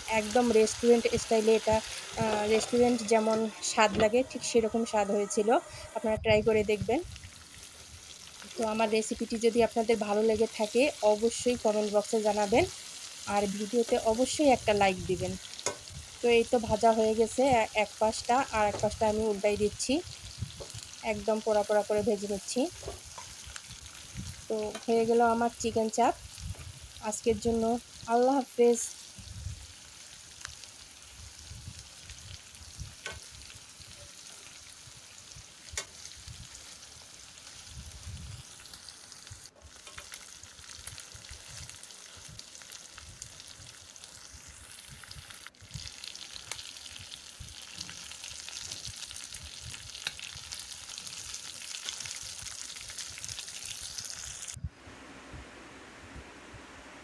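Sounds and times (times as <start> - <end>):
chicken sizzling in a pan: 0.0 - 54.6
spatula scraping pan: 1.8 - 6.2.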